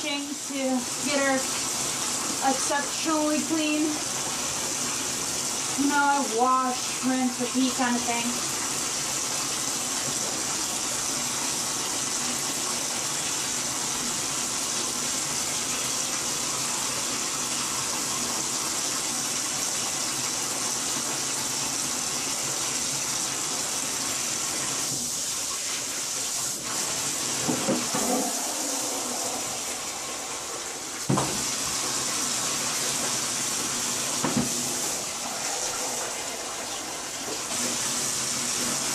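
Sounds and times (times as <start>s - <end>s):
bathtub tap running: 19.3s - 38.9s.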